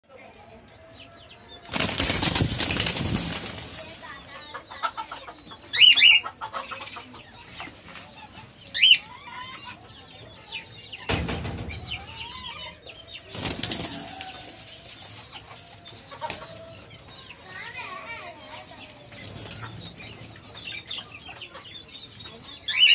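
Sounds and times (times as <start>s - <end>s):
small birds chirping: 0.1s - 22.9s
wings flapping against cage: 1.6s - 4.4s, 13.3s - 16.7s, 19.1s - 21.1s.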